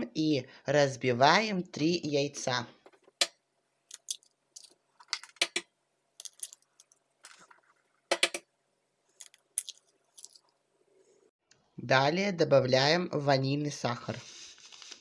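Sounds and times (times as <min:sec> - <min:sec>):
eggshells cracking: 0:03.9 - 0:05.6, 0:06.2 - 0:07.5, 0:09.1 - 0:10.6.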